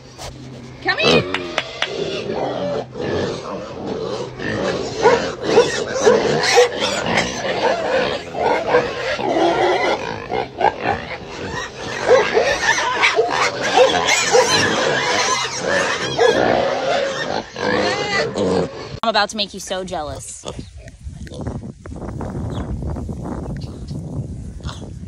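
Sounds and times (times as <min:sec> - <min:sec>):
pigs grunting and oinking: 0:00.9 - 0:19.0, 0:20.4 - 0:21.6, 0:24.6 - 0:25.0.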